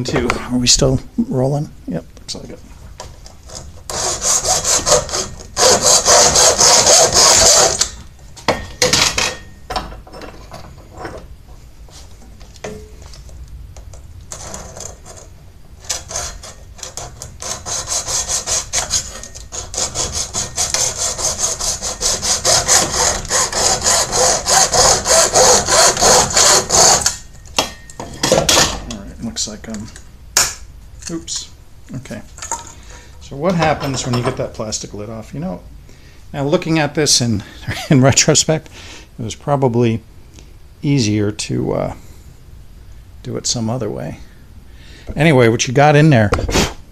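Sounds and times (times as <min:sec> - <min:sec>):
hacksaw cutting plastic: 0:03.5 - 0:08.0, 0:14.3 - 0:28.8.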